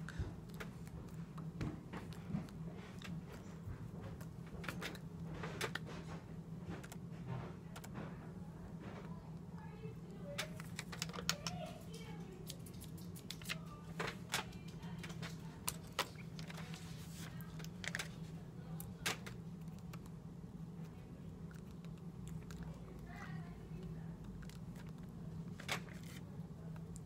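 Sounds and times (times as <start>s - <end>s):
steady low hum: 0.0s - 27.0s
paper crinkling and rustling: 10.4s - 18.4s, 24.3s - 26.3s.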